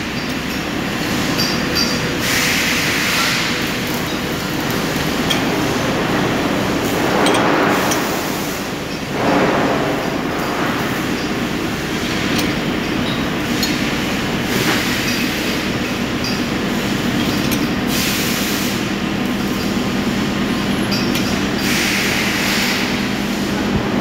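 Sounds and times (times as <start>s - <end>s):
loud mechanical rushing: 2.3s - 12.8s.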